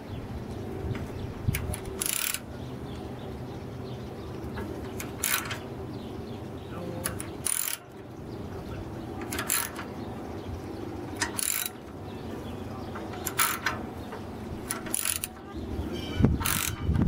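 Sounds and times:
ratchet wrench clicking: 1.5 - 2.4, 5.0 - 5.6, 7.0 - 7.9, 9.2 - 9.9, 11.2 - 11.8, 13.2 - 13.8, 14.6 - 15.4, 16.4 - 17.0.

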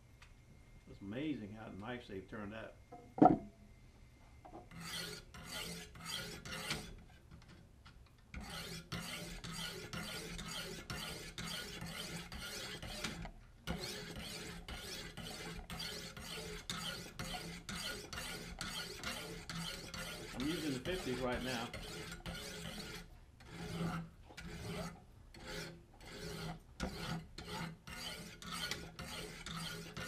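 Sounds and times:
sharpening stones rasping on knife: 4.7 - 6.9, 8.4 - 30.0.

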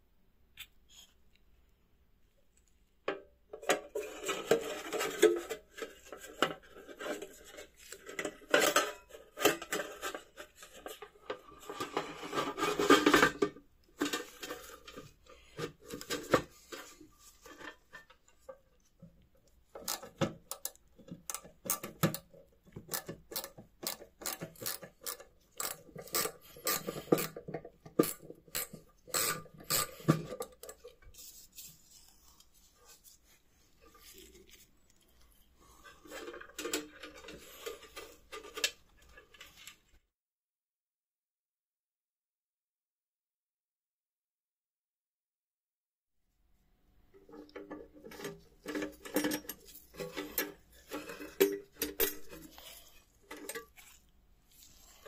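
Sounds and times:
metal parts scraping and rubbing: 3.8 - 18.6, 22.9 - 39.9, 47.2 - 55.0.

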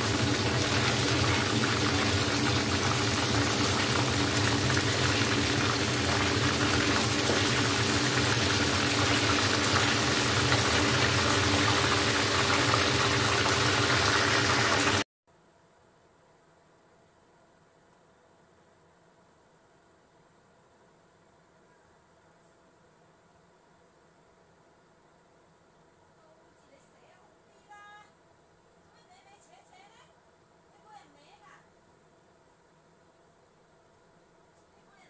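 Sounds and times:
chicken frying in sizzling oil: 0.0 - 15.1.

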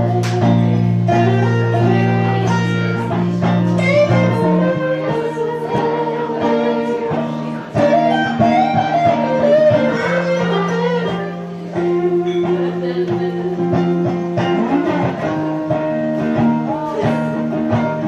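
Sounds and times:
electric guitar playing: 0.0 - 18.0.

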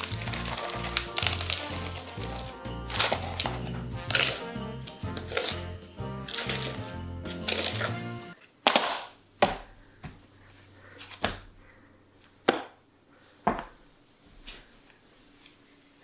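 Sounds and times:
background music: 0.0 - 8.4.

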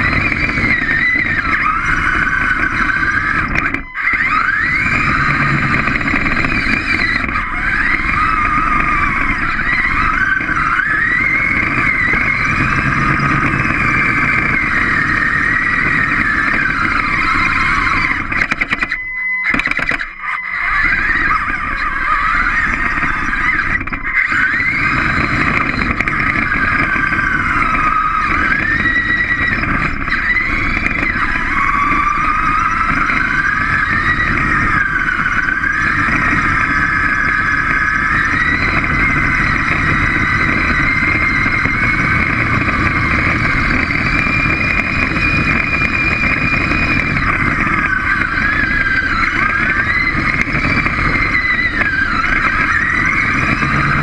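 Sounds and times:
robot motors and gears whining: 0.0 - 54.0
rumble of wheels on floor: 0.0 - 54.0.

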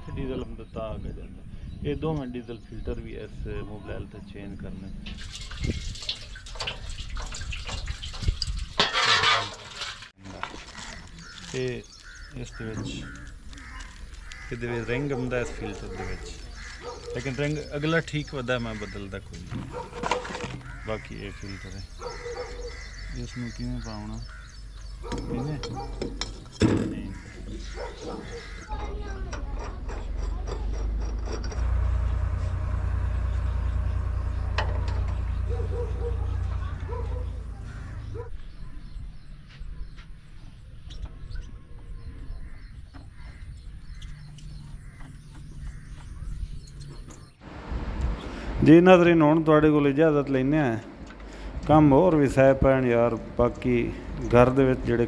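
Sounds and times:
diesel splattering into steel bowl: 5.0 - 10.6
metallic clicks and scrapes: 7.6 - 10.2, 28.8 - 32.0.

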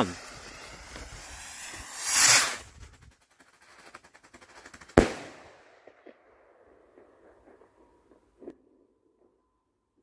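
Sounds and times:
firework bang echoing: 0.0 - 2.8, 4.9 - 8.5
firework crackling pops: 0.0 - 6.3.

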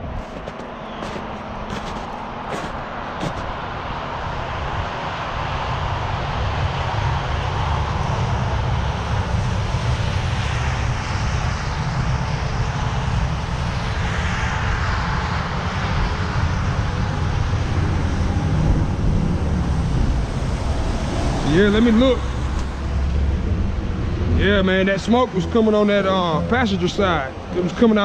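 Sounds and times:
passing highway traffic: 0.0 - 28.0.

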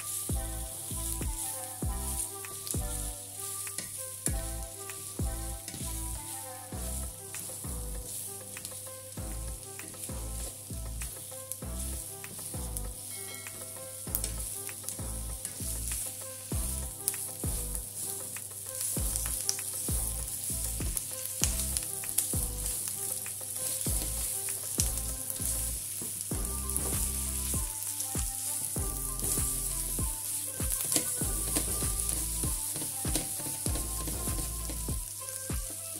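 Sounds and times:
vegetables sizzling in oil: 0.0 - 35.9
spatula scraping a pan: 17.1 - 26.9.

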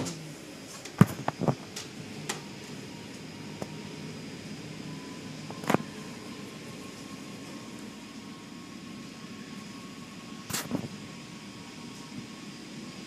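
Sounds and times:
car wash machinery hum: 0.0 - 13.0.

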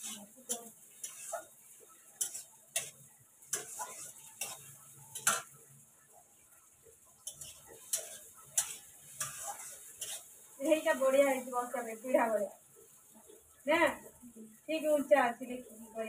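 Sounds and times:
metal spatula scraping a pan: 0.0 - 5.8, 7.2 - 12.0
faint sizzle: 0.0 - 16.0.

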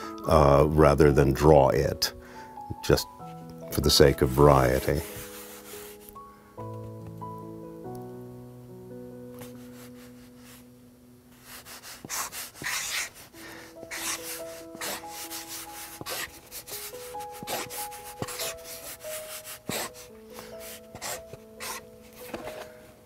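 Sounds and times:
soft background music: 0.0 - 23.0
pen scratching on card: 11.5 - 13.3, 13.9 - 22.6.

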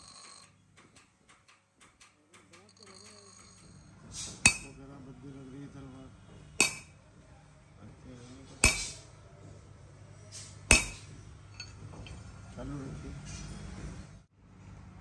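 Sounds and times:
hammer striking steel on anvil: 4.3 - 4.8, 6.6 - 7.0, 8.6 - 9.0, 10.7 - 12.2.

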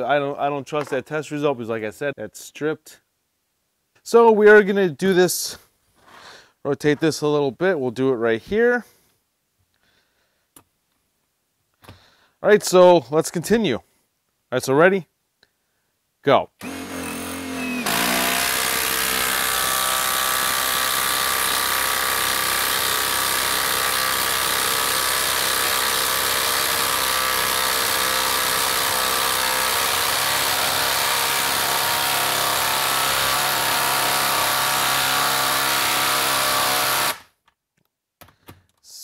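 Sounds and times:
impact driver hammering: 16.6 - 37.3.

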